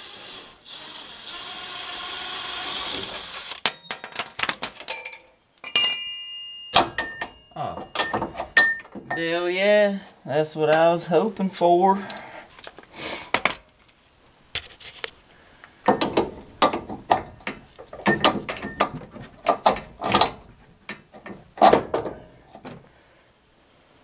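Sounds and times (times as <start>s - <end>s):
metallic clicks and clanks: 3.4s - 9.2s, 15.8s - 22.3s.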